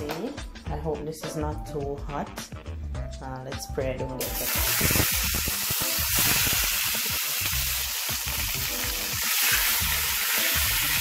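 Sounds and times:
steak sizzling in a pan: 4.2s - 11.0s.

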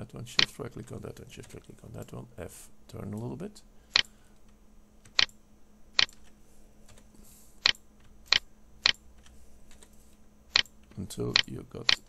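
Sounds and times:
mouse and keyboard clicks: 5.1s - 5.4s, 6.0s - 6.3s, 6.9s - 9.9s, 10.5s - 12.0s.

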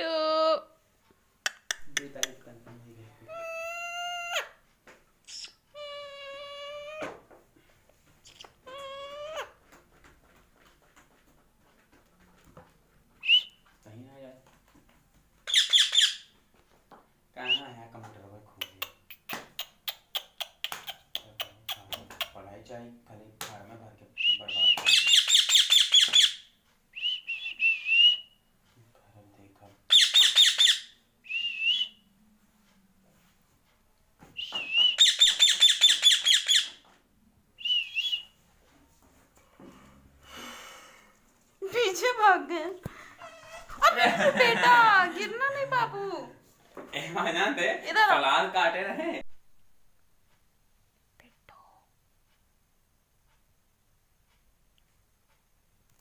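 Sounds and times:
parakeet whistled chirp: 13.2s - 13.5s, 24.2s - 26.4s, 27.0s - 28.4s, 29.9s - 32.0s, 34.4s - 36.7s, 37.6s - 38.4s
parakeet harsh squawks: 15.5s - 16.2s, 29.9s - 30.9s.

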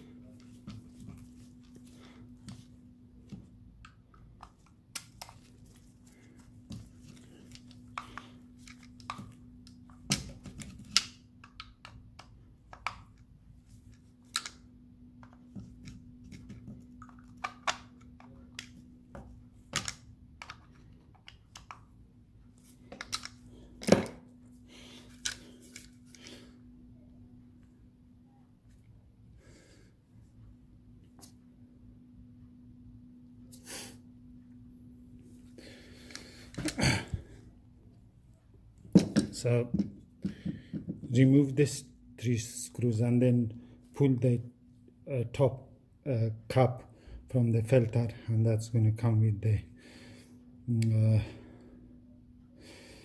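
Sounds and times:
steady low hum: 0.0s - 53.0s
plastic parts clicking and knocking: 6.7s - 14.6s, 15.2s - 21.9s, 22.9s - 24.2s.

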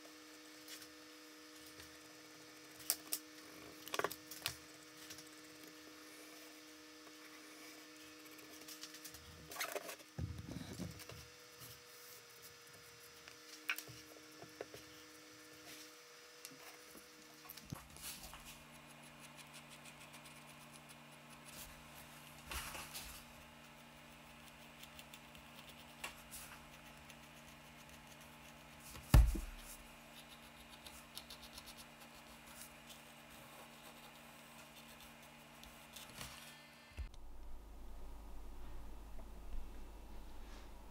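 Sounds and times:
sharp thump: 29.1s - 29.6s.

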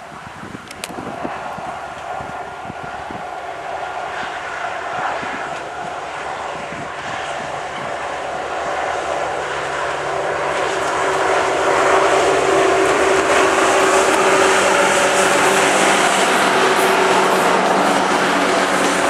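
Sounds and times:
diesel locomotive engine droning: 0.0s - 19.0s.

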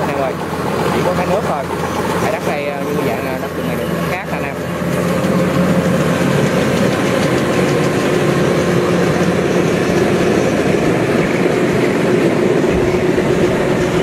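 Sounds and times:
diesel engine running under load: 0.0s - 14.0s.

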